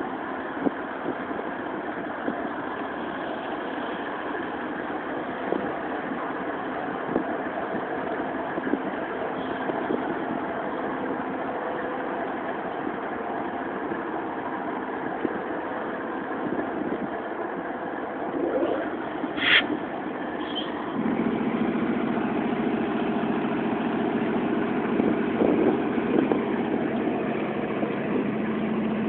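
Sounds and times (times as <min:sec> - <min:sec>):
diesel locomotive engine drone: 0:00.0 - 0:29.0
short high-pitched squeal: 0:18.4 - 0:19.7, 0:20.4 - 0:20.8.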